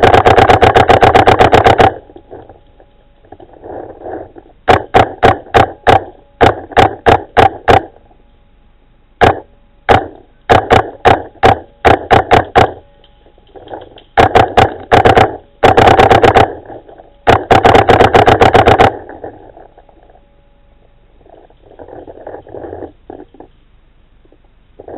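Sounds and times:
paintball marker firing: 0:00.0 - 0:02.0, 0:04.7 - 0:07.9, 0:09.2 - 0:12.8, 0:13.6 - 0:16.6.

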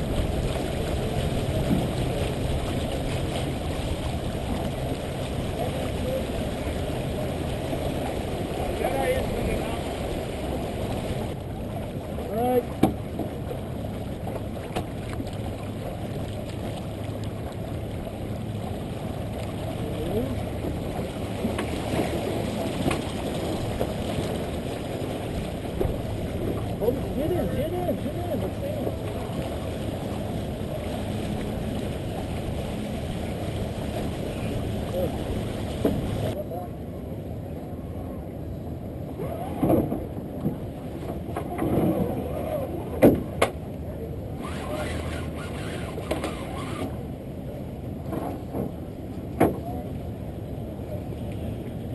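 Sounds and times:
wind on microphone: 0:00.0 - 0:49.0
water rushing along hull: 0:00.0 - 0:51.9
faint voices: 0:05.4 - 0:11.0, 0:26.4 - 0:39.8, 0:41.4 - 0:47.6.

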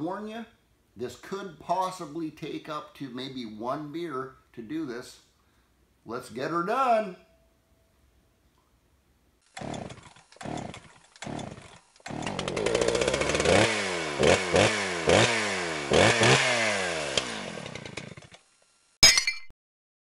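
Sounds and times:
chainsaw engine revving: 0:09.4 - 0:18.6
starter cord pulls: 0:09.5 - 0:13.8, 0:17.1 - 0:18.4.

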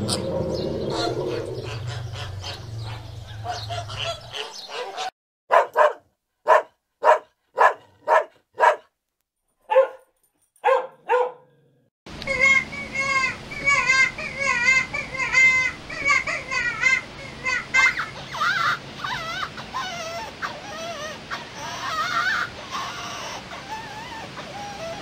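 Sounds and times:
low rumble: 0:00.0 - 0:04.1
dog barking: 0:02.4 - 0:08.9, 0:09.7 - 0:11.6.

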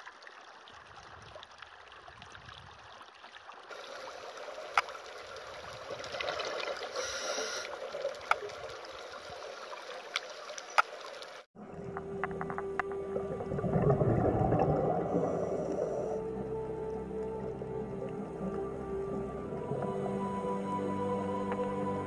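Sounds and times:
rushing water hiss: 0:03.7 - 0:11.5.

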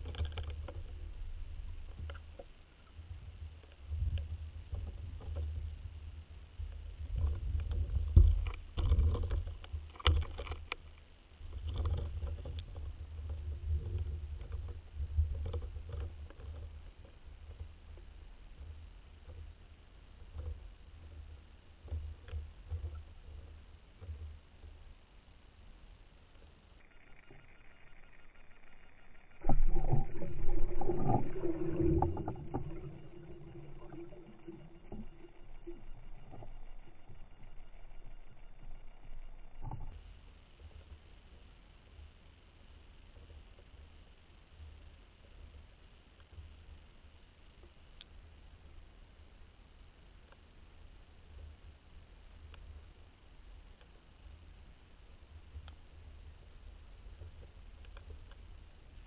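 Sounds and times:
muffled underwater rumble: 0:00.0 - 0:27.4, 0:28.1 - 0:59.0
underwater splash: 0:29.4 - 0:36.6.

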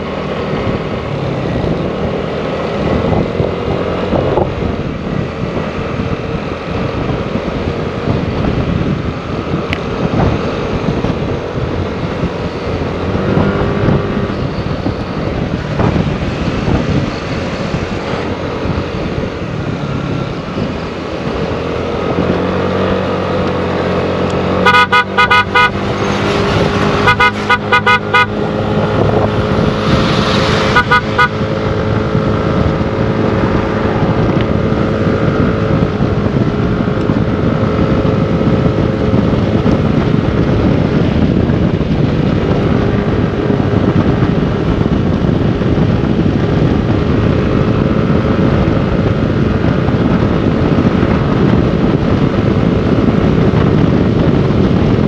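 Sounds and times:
motorcycle engine drone: 0:00.0 - 0:55.0
wind noise: 0:00.0 - 0:55.0
vehicle horn beeping: 0:24.6 - 0:25.9, 0:27.0 - 0:28.4, 0:30.6 - 0:31.4.

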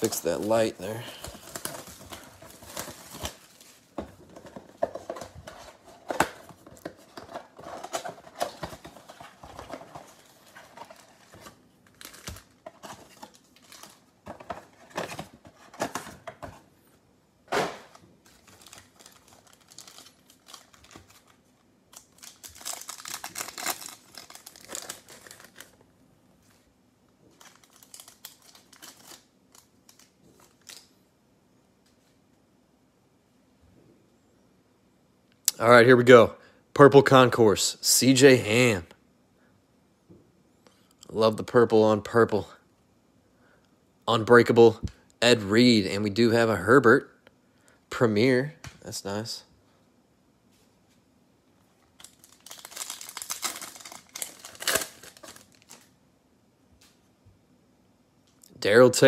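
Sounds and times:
plastic wrap crinkling and tearing: 0:00.0 - 0:04.0, 0:04.8 - 0:16.0, 0:18.2 - 0:25.8, 0:27.3 - 0:30.9, 0:52.0 - 0:55.9
foil packs rustling: 0:00.0 - 0:16.3, 0:18.3 - 0:25.8, 0:27.4 - 0:29.3, 0:52.0 - 0:55.9.

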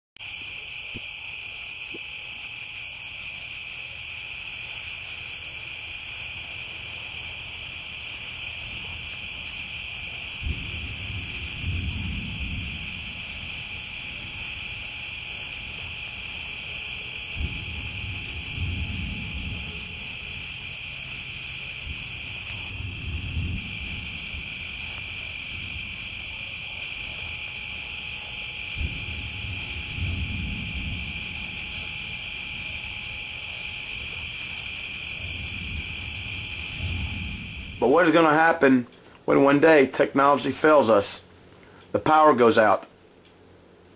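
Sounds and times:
pulsing insect chirp: 0:00.2 - 0:38.5
night insects trilling: 0:00.2 - 0:42.8
low rumbles: 0:08.2 - 0:39.8.

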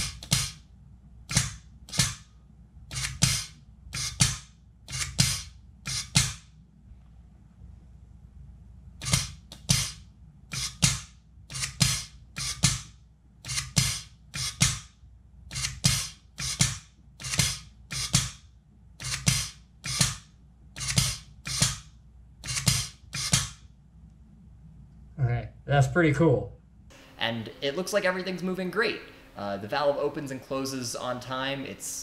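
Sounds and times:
solenoid valve clacks: 0:00.0 - 0:00.6.

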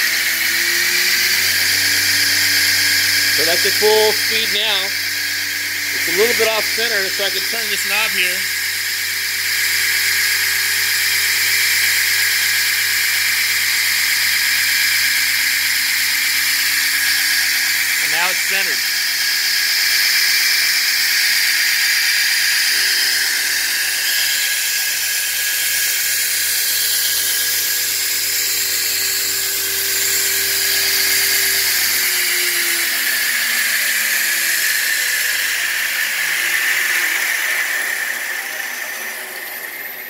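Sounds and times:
grinder belt hiss and whine: 0:00.0 - 0:40.0
motor hum: 0:00.1 - 0:20.2.

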